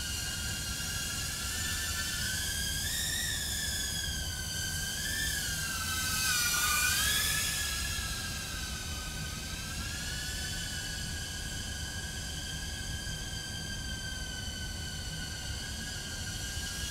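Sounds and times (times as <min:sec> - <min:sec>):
drone propellers whining: 0:00.0 - 0:13.9.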